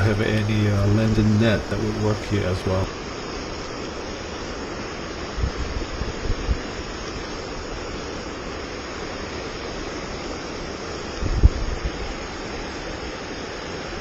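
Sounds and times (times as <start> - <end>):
river rapids rushing: 6.6 - 14.0.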